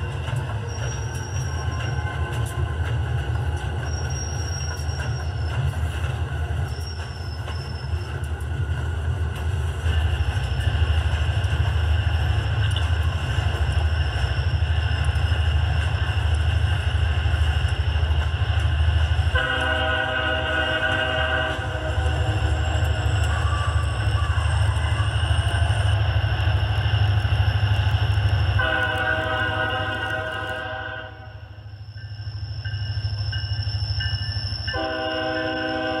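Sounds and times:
diesel locomotive engine rumble: 0.0 - 36.0
multi-note air horn: 19.4 - 21.9, 34.8 - 36.0.

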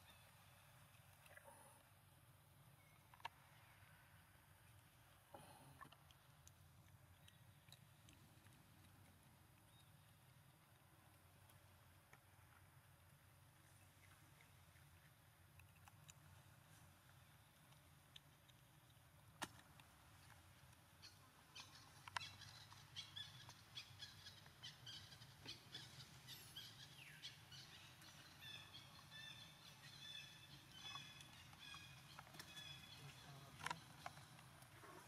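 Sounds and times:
low steady hum: 0.0 - 35.0
faint bird chirps and calls: 20.9 - 35.0.

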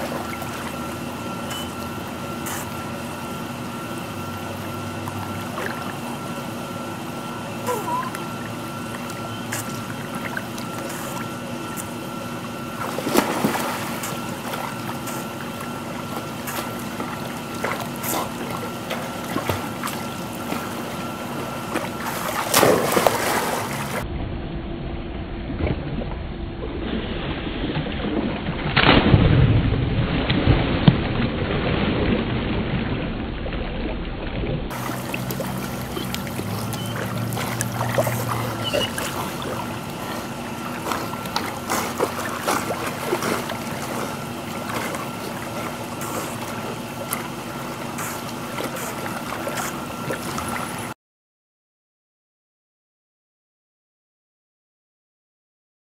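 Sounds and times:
dogs splashing in water: 0.0 - 24.0, 34.7 - 50.9
steady low hum: 0.0 - 31.4, 34.2 - 51.0.

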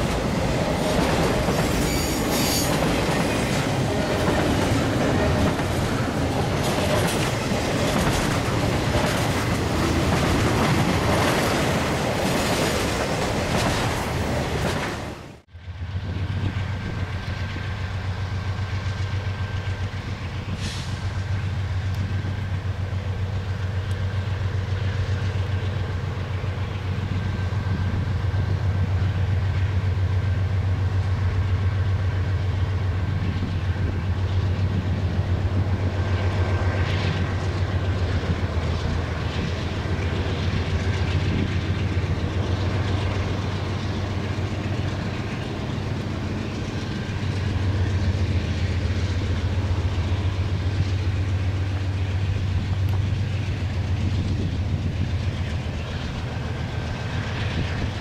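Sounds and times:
boxcars rolling: 0.0 - 15.4
diesel locomotive engines humming: 0.0 - 58.0.

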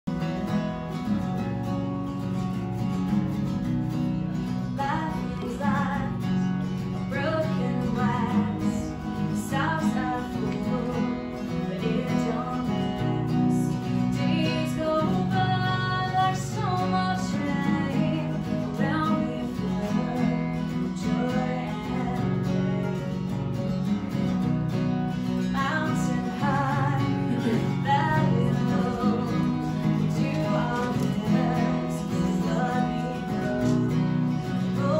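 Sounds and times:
acoustic guitar strumming chords: 0.1 - 34.9.

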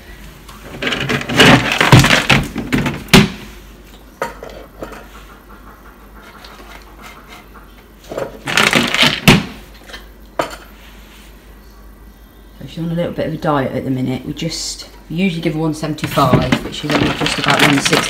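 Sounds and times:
dry kibble rattling onto scale: 8.4 - 9.4, 16.0 - 18.0.

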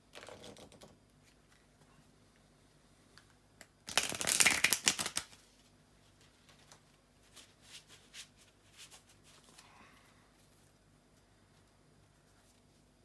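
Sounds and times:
cards being riffle-shuffled: 3.9 - 5.4.

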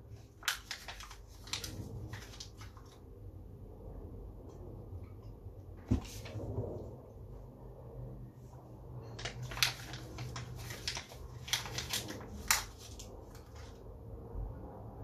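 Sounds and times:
paper crinkling and crackling: 0.0 - 3.1, 9.0 - 13.8.

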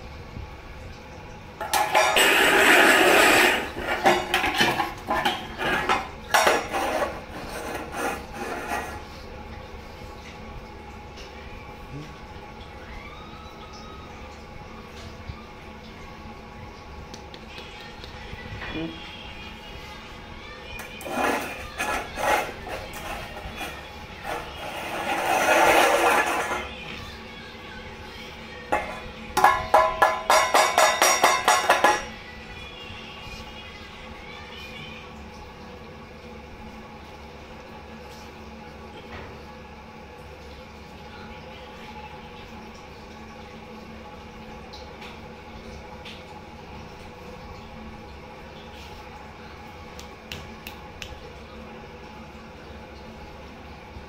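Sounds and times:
dogs scuffling over metal bowl: 1.7 - 9.1, 21.0 - 26.8
rasping scraping noises: 1.7 - 9.2, 20.8 - 26.9.

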